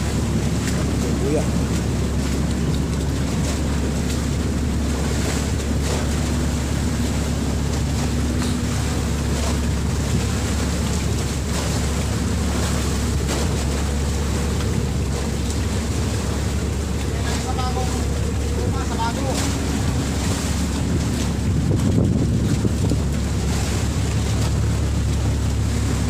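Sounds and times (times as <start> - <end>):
boat engine running: 0.0 - 26.0
water washing around hull: 0.0 - 26.0
wind on microphone: 18.0 - 26.0.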